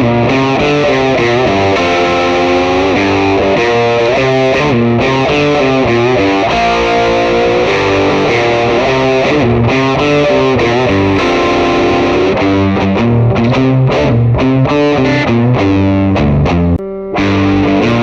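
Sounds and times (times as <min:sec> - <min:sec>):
distorted electric guitar: 0:10.8 - 0:18.0.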